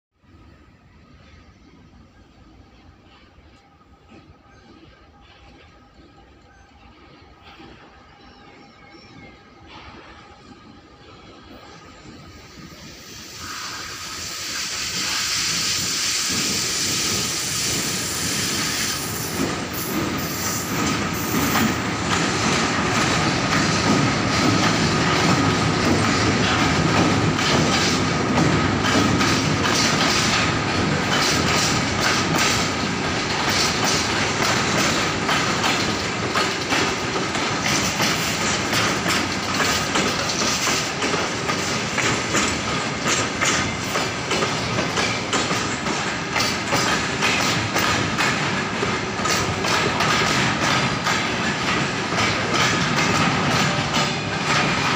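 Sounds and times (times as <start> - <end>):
train wagons rumbling past: 0.2 - 54.9
hiss: 12.3 - 21.8
wheels clacking over rail joints: 16.3 - 54.9.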